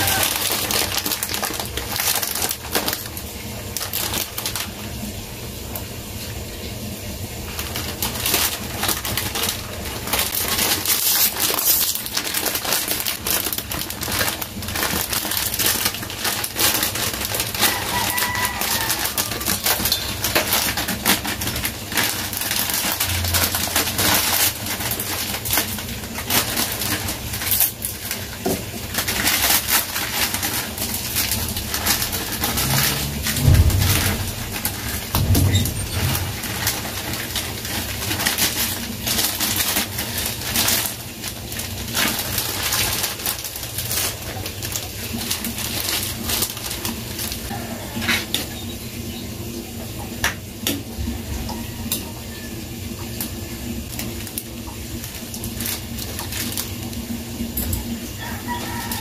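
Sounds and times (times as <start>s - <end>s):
dry noodles cracking: 0.0s - 5.1s, 7.5s - 47.5s
plastic packet crinkling: 0.0s - 5.9s, 7.4s - 48.4s, 51.6s - 59.0s.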